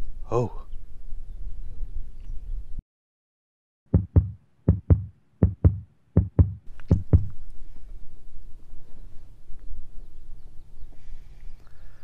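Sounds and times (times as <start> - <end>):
outdoor background noise: 0.0 - 2.8, 3.9 - 12.0
punchy drum machine beats: 3.9 - 7.3.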